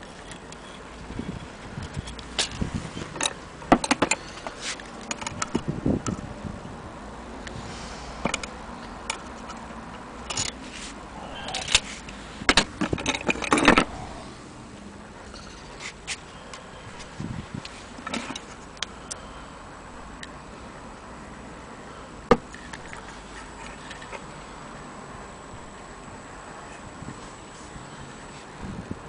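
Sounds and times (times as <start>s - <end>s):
metal parts clicking and scraping: 0.0s - 6.2s, 8.2s - 14.3s, 15.2s - 16.2s, 17.0s - 19.2s, 22.5s - 24.2s.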